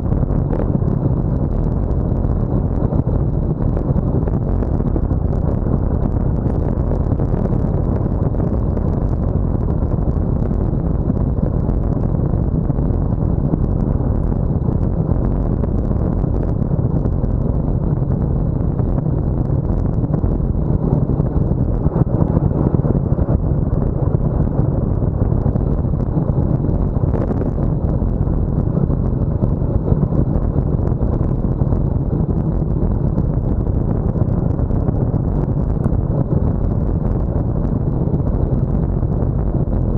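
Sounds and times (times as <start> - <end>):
wind buffeting microphone: 0.0 - 39.9.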